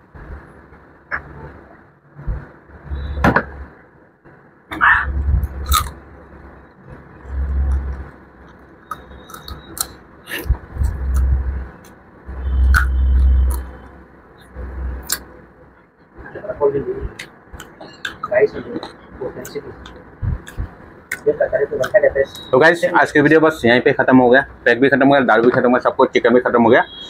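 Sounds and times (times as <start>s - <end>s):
man chewing crunchy food: 5.4s - 6.2s, 6.8s - 15.9s, 17.1s - 22.5s.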